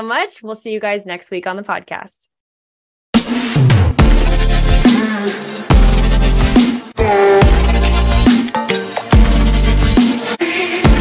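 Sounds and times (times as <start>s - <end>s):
electronic music with heavy bass: 3.2s - 11.0s.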